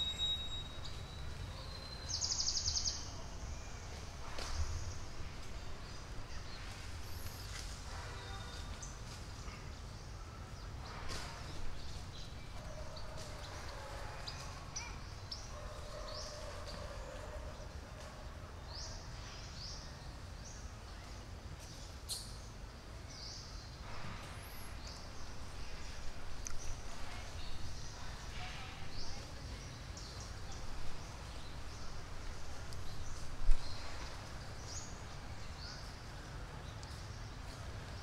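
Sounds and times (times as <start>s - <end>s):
bird chirping: 0.0s - 3.9s.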